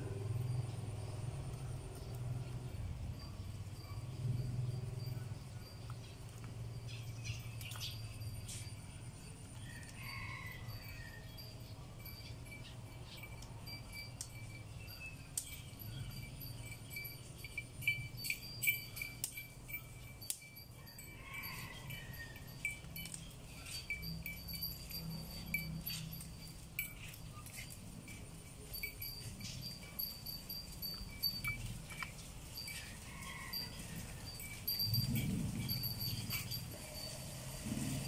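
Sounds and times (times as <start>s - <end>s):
high-pitched chirps and ticks: 0.0s - 21.6s, 22.3s - 37.5s
steady low rumble: 33.9s - 38.0s.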